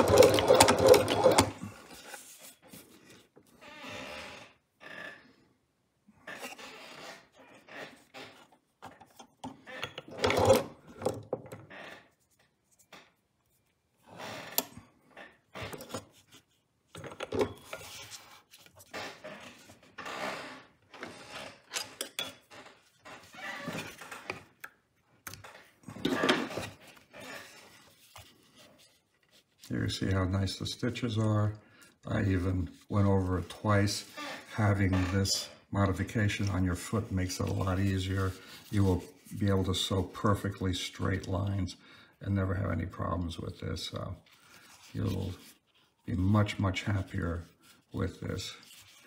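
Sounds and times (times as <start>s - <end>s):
sewing mechanism scraping: 0.0s - 2.5s, 9.7s - 10.8s.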